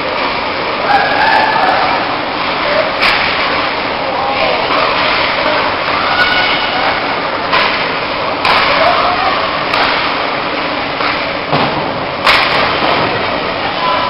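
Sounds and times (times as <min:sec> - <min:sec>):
crowd voices: 0:00.0 - 0:14.0
hockey sticks and puck knocking: 0:03.0 - 0:03.6, 0:07.5 - 0:08.8, 0:09.7 - 0:10.2, 0:11.0 - 0:13.2.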